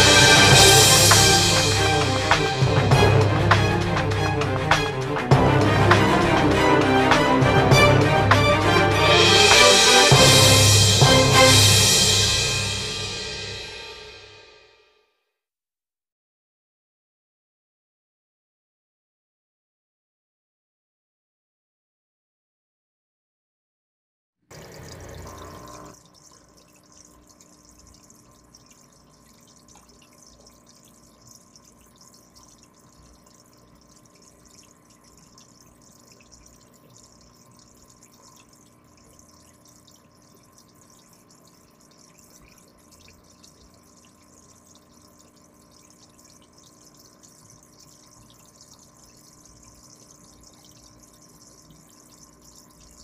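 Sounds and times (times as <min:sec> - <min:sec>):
aquarium water bubbling: 0:00.0 - 0:10.3, 0:24.5 - 0:53.0
faint steady hum: 0:24.5 - 0:53.0.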